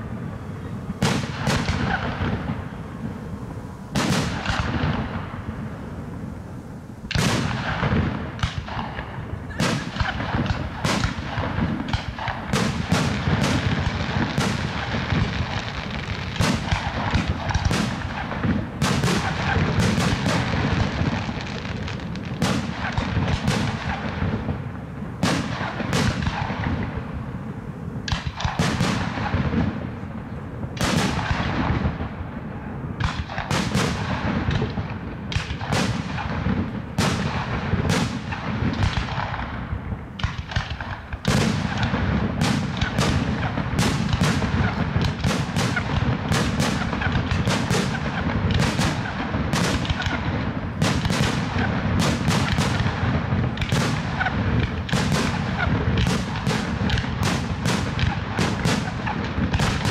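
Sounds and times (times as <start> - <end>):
continuous low rumble: 0.0 - 59.9
firework shells bursting: 33.0 - 59.9.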